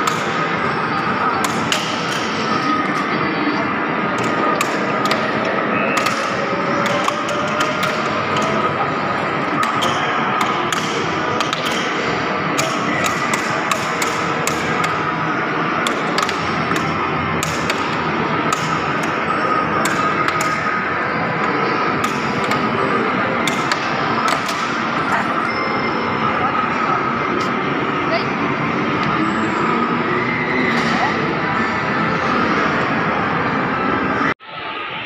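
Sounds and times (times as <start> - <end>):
air hockey puck and mallets clacking: 0.0 - 3.1, 4.1 - 25.0
arcade background din: 0.0 - 35.0.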